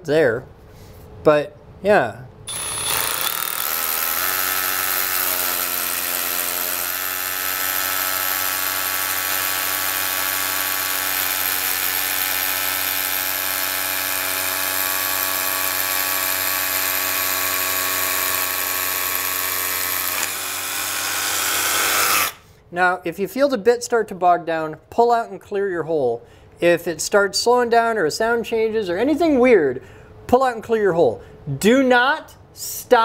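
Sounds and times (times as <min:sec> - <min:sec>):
rotary hammer drilling into concrete: 0:02.5 - 0:22.4.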